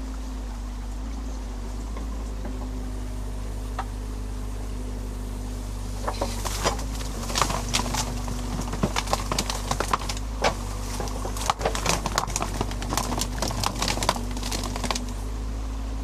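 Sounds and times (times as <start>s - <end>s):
diesel engine running: 0.0s - 16.0s
branches cracking and snapping: 5.9s - 15.4s.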